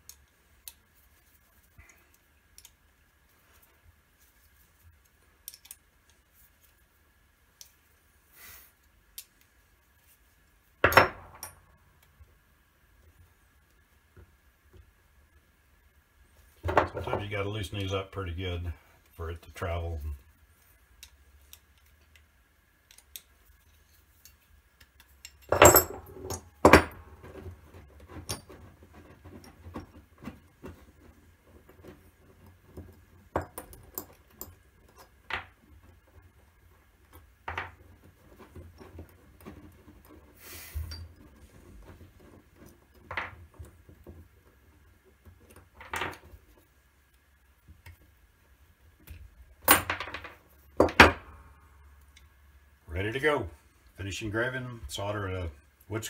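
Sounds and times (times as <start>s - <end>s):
metallic clinks and knocks: 25.0s - 35.6s, 40.8s - 41.5s.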